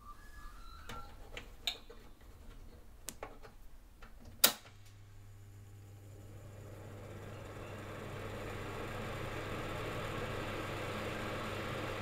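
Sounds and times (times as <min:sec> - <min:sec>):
heater control clicks: 0:04.0 - 0:05.0
fan motor humming: 0:05.2 - 0:12.0.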